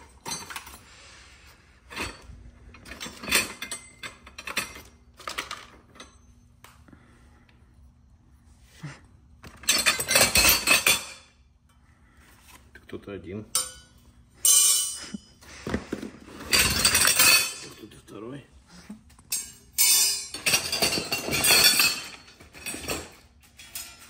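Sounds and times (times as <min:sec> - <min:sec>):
loose parts knocking and clinking: 0:01.9 - 0:06.2.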